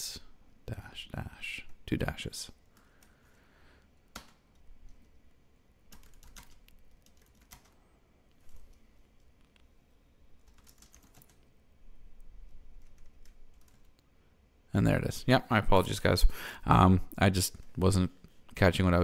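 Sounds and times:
keyboard typing: 0:04.1 - 0:05.2, 0:05.9 - 0:07.8, 0:10.4 - 0:11.5, 0:12.4 - 0:14.0.

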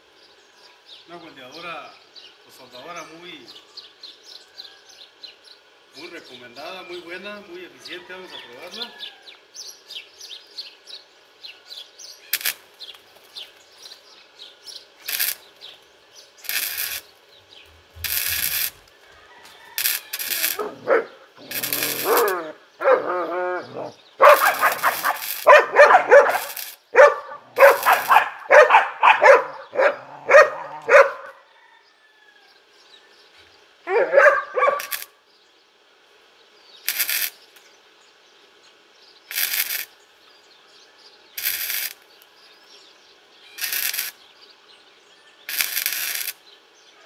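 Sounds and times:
welder arc crackling: 0:12.3 - 0:14.0, 0:15.0 - 0:19.1, 0:19.8 - 0:22.6, 0:24.2 - 0:29.5, 0:34.4 - 0:35.2, 0:36.8 - 0:37.7, 0:39.3 - 0:40.0, 0:41.4 - 0:42.3, 0:43.6 - 0:44.2, 0:45.5 - 0:46.4
dog barking rapidly: 0:20.6 - 0:31.4, 0:33.9 - 0:35.0.

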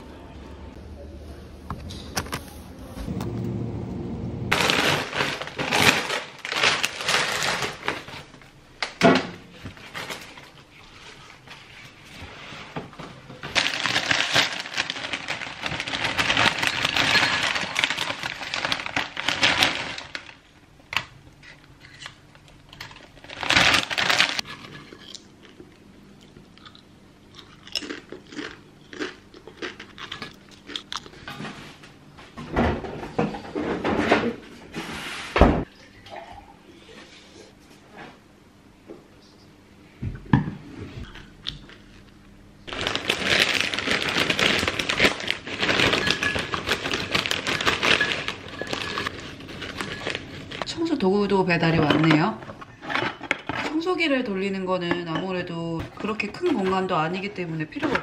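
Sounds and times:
plastic crisp packet crinkling: 0:04.5 - 0:08.3, 0:13.4 - 0:20.5, 0:21.9 - 0:25.2, 0:42.7 - 0:51.0
chips pouring into a bowl: 0:13.5 - 0:20.4, 0:42.7 - 0:50.6.

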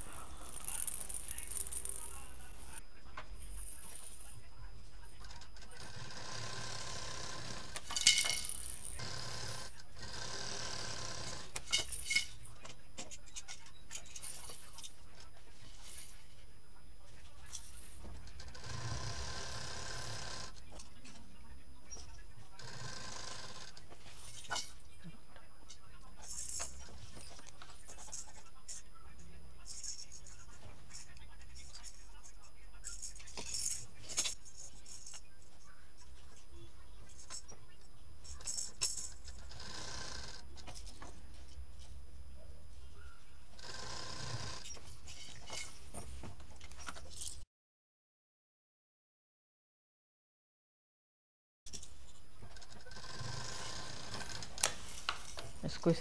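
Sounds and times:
plastic toys rattling: 0:00.0 - 0:02.8, 0:07.6 - 0:09.6, 0:11.3 - 0:12.4, 0:13.0 - 0:16.3, 0:26.2 - 0:28.8, 0:29.7 - 0:35.2, 0:38.2 - 0:39.5.

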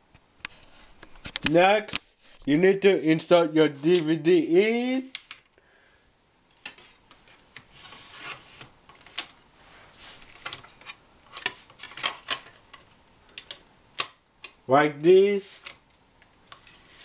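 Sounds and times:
plastic disc case rubbing: 0:06.8 - 0:12.6.

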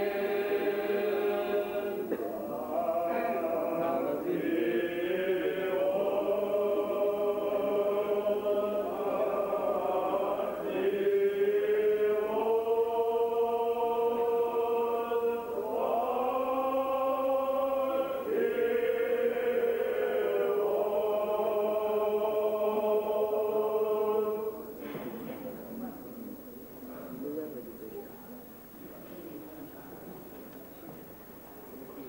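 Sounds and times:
choir singing slow chant: 0:00.0 - 0:25.6.

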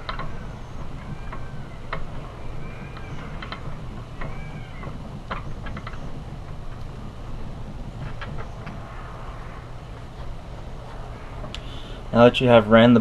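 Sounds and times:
metal clicks and squeaks: 0:00.0 - 0:08.9
steady low hum: 0:00.0 - 0:13.0.

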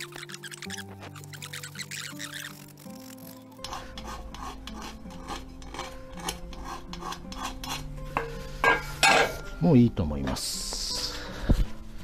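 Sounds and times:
hand file rasping on iron: 0:00.0 - 0:08.8.

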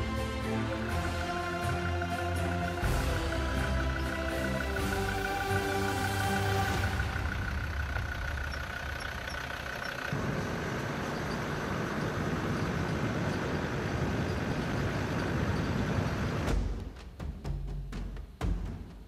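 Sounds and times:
music: 0:00.0 - 0:08.0, 0:16.5 - 0:19.0
truck engine and road noise: 0:00.0 - 0:16.8.

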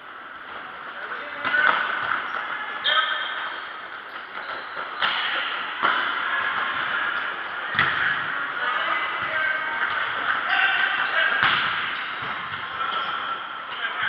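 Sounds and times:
ball kicked with echoing thuds: 0:07.7 - 0:08.3, 0:11.3 - 0:12.8.

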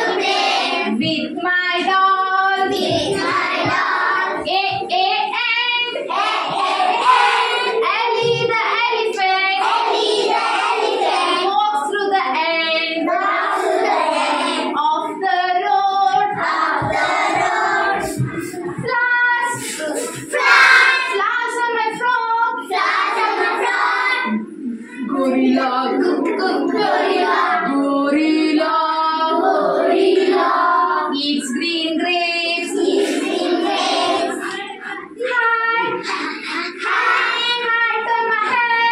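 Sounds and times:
children singing: 0:00.0 - 0:38.9
woman leading singing: 0:00.8 - 0:06.1, 0:14.8 - 0:22.8, 0:24.3 - 0:29.6, 0:31.0 - 0:32.9.

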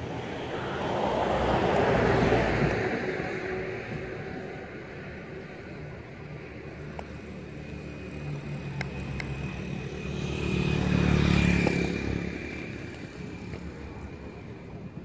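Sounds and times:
vehicle engine passing by: 0:08.3 - 0:12.7.

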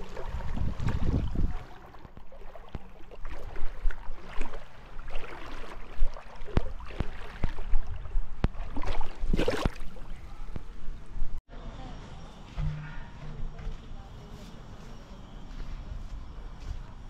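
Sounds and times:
rush of water: 0:00.0 - 0:10.2
seawater sloshing at shore: 0:00.0 - 0:11.2.

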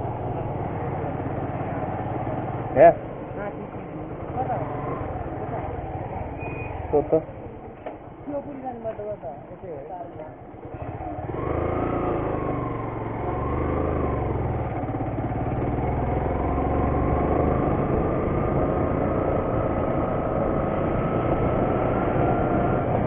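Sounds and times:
motorcycle engine running: 0:00.0 - 0:09.1, 0:10.2 - 0:23.0.

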